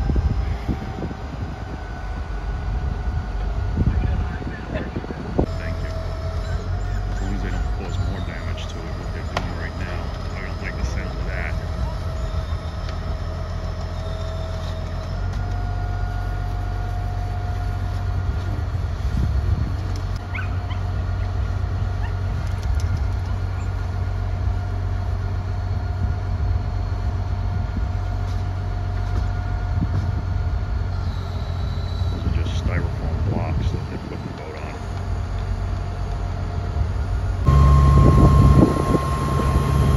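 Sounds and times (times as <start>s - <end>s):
high whine: 0.0s - 19.6s, 29.2s - 39.9s
heavy diesel engine drone: 0.0s - 39.9s.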